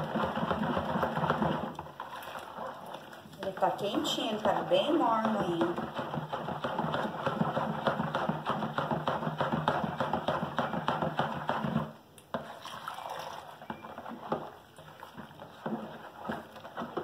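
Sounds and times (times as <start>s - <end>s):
liquid sloshing: 0.0s - 8.6s, 12.3s - 17.0s
spoon beating liquid in plastic bowl: 0.0s - 17.0s.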